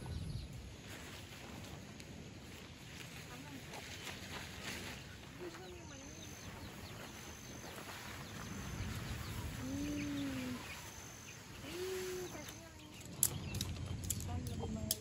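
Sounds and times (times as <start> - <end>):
low wind rumble: 0.0 - 15.0
faint high chirp: 5.4 - 14.6
low drawn-out animal calls: 6.2 - 12.5.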